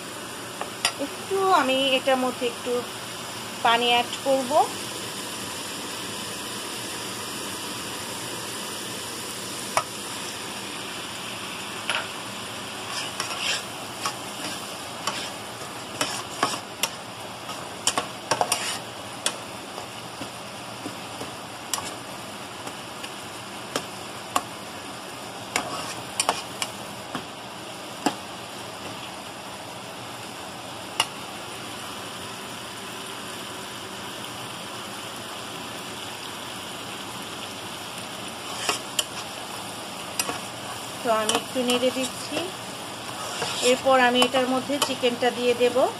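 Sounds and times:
masala sizzling in pan: 0.0s - 45.9s
metal spatula scraping pan: 12.8s - 19.4s, 25.5s - 26.6s, 38.4s - 39.2s, 43.1s - 45.1s.

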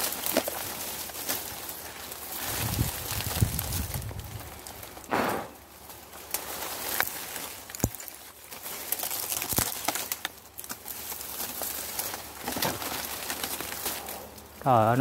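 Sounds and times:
leafy branches rustling: 0.0s - 15.0s
twigs crackling and snapping: 0.0s - 15.0s.

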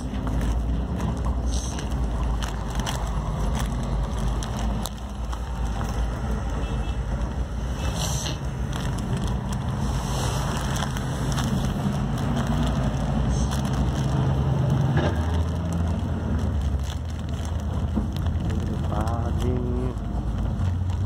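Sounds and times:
small rattles and clicks: 0.0s - 9.8s, 10.4s - 21.0s
vehicle engine and road rumble: 0.0s - 21.0s.

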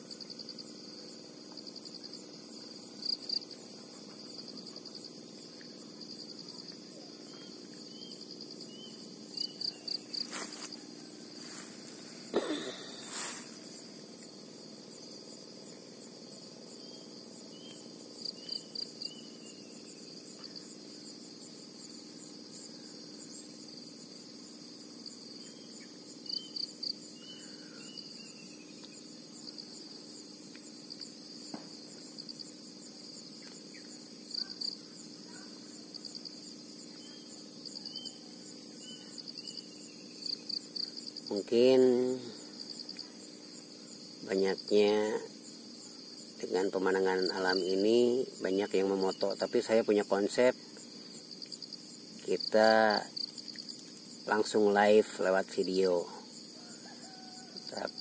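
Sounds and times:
insects droning high-pitched: 0.0s - 58.0s
faint bird chirps: 6.5s - 10.3s, 25.4s - 29.0s, 36.9s - 40.6s.

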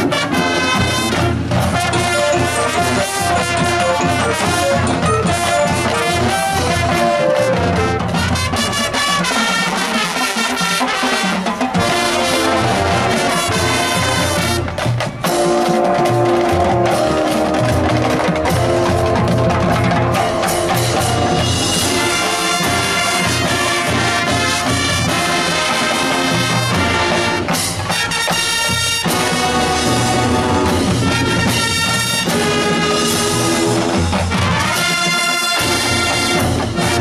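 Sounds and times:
marching band with brass: 0.0s - 37.0s.

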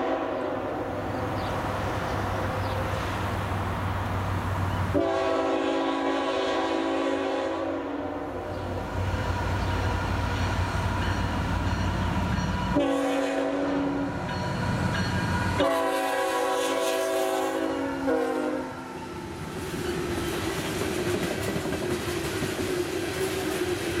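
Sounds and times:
train air horn blasts: 0.0s - 0.8s, 4.9s - 8.5s, 12.7s - 14.3s, 15.5s - 19.0s
diesel locomotive engine rumbling: 0.0s - 24.0s
train wheels clicking over rail joints: 19.4s - 24.0s.

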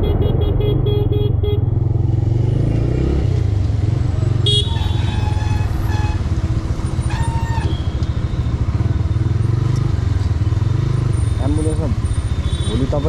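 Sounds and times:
vehicle horn blast: 0.0s - 1.7s, 4.4s - 6.4s
motorcycle engine rumble: 0.0s - 13.0s.

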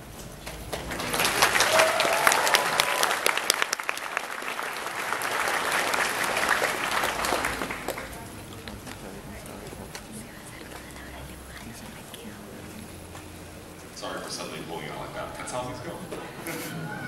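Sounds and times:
audience applauding: 0.3s - 11.8s.

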